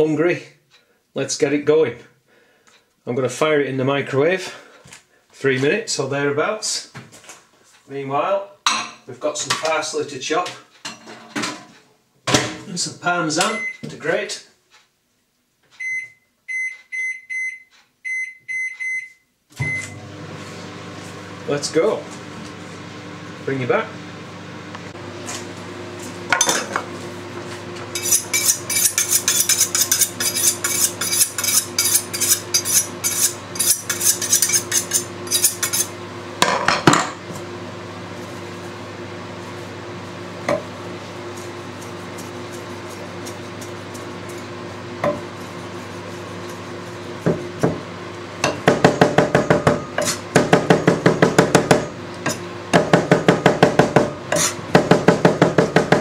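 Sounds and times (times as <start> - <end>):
microwave oven humming: 15.8 - 30.2, 30.9 - 56.0
knife chopping on wooden board: 48.4 - 56.0.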